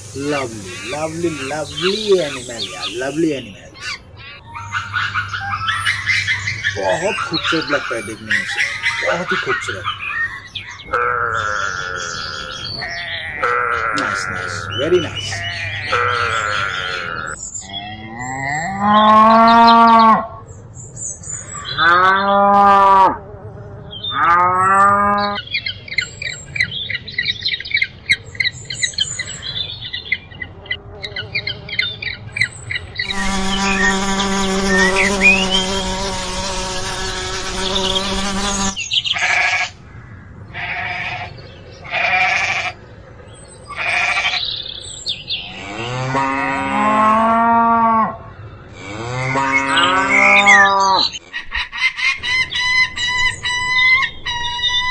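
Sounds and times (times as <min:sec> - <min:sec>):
high rapid animal chatter: 0:00.0 - 0:17.4, 0:33.0 - 0:39.7, 0:49.7 - 0:54.9
animal calls: 0:00.0 - 0:20.5, 0:30.4 - 0:39.9, 0:40.5 - 0:42.8, 0:43.6 - 0:44.8, 0:45.4 - 0:54.9.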